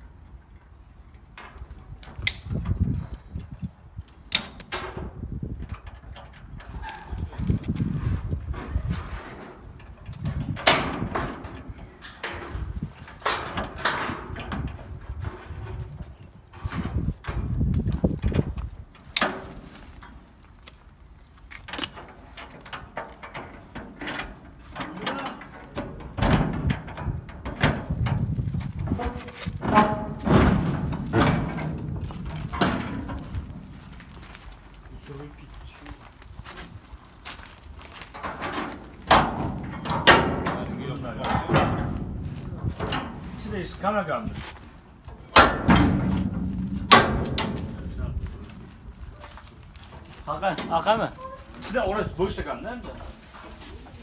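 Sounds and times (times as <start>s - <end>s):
metal clicking and clanking: 0.1s - 7.8s, 9.8s - 15.9s, 21.5s - 34.7s, 38.1s - 43.4s, 45.0s - 49.0s
sharp metallic clicks of pliers: 1.1s - 4.8s, 21.5s - 22.0s
low thumping handling noise: 39.0s - 50.9s.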